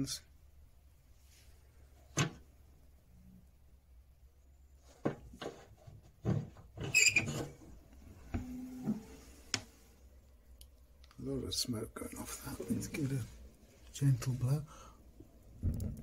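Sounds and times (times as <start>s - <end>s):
door squeak: 6.8s - 7.6s.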